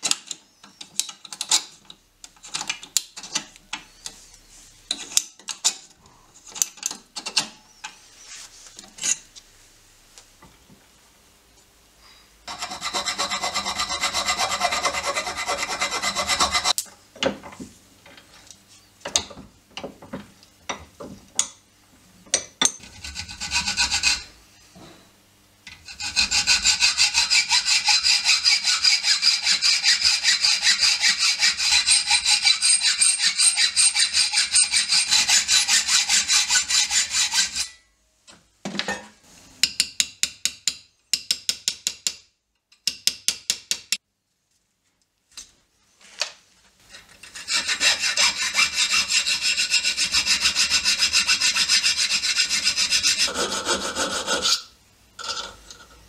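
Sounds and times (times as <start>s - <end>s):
hacksaw cutting steel: 12.5s - 16.8s, 25.8s - 37.8s, 47.2s - 55.5s.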